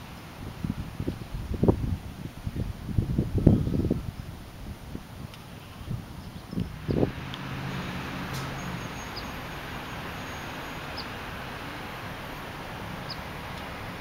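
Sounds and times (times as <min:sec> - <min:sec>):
low hum: 0:05.4 - 0:14.0
high bird chirps: 0:05.6 - 0:13.7.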